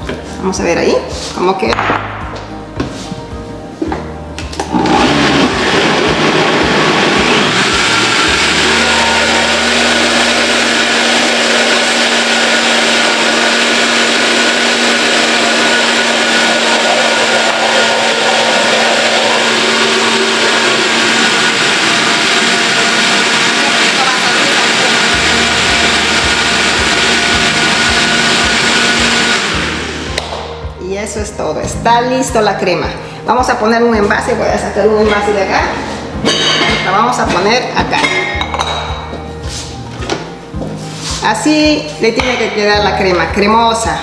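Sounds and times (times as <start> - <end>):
blender running: 4.6 - 30.3.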